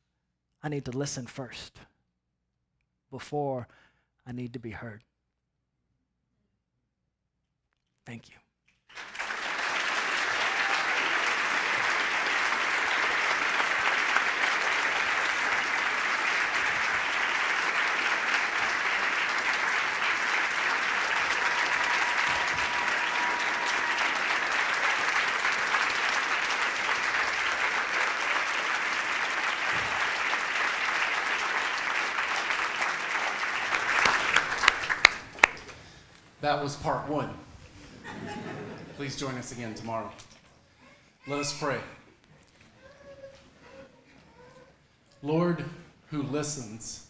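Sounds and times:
large audience applauding: 8.9 - 35.8.

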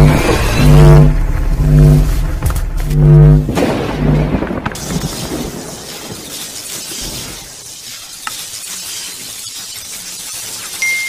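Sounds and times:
deep synth tone: 0.0 - 4.5.

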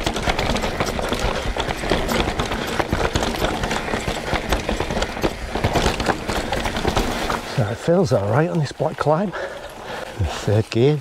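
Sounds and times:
mountain bike rattling on trail: 0.0 - 11.0.

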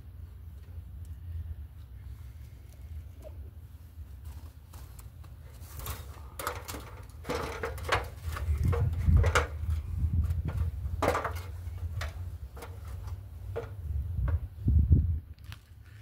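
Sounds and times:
metal ladder knocking and clunking: 5.6 - 14.4
wind rumble on microphone: 8.1 - 12.6, 13.5 - 16.0.

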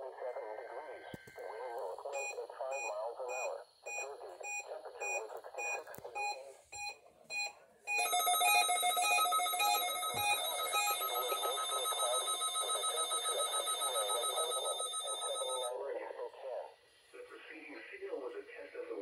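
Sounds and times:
radio voice broadcast: 0.0 - 6.6
electronic alert alarm beeping: 2.2 - 15.7.

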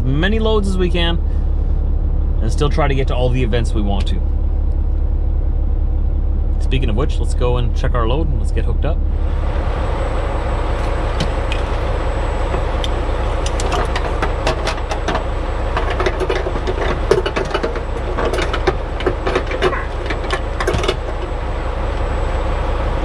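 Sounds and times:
diesel truck engine idling: 0.0 - 23.0
metal clinks and rattles: 12.5 - 21.4.

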